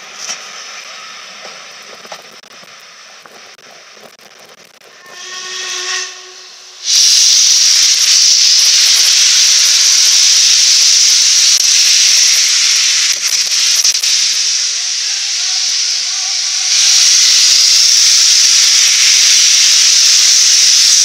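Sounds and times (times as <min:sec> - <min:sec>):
loud hiss of steam: 0:00.0 - 0:21.0
steam locomotive whistle: 0:04.9 - 0:10.2, 0:18.4 - 0:20.9.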